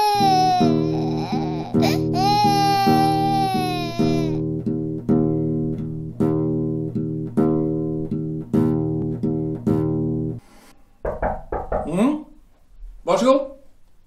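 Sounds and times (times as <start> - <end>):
low chord: 1.9 - 10.4.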